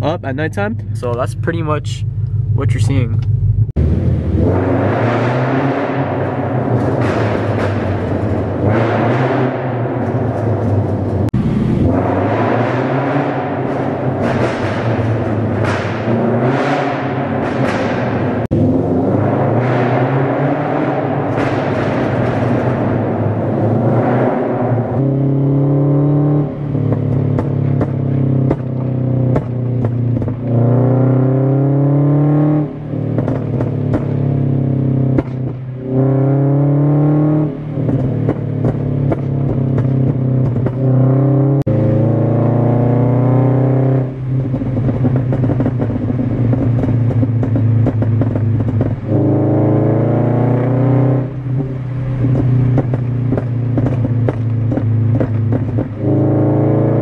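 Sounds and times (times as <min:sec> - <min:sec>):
exhaust pops and ticks: 0:00.0 - 0:03.8, 0:06.3 - 0:12.0, 0:13.6 - 0:18.6, 0:21.2 - 0:23.9, 0:26.6 - 0:31.3, 0:32.6 - 0:36.0, 0:37.4 - 0:41.7, 0:43.6 - 0:57.0
car engine accelerating hard: 0:00.0 - 0:57.0.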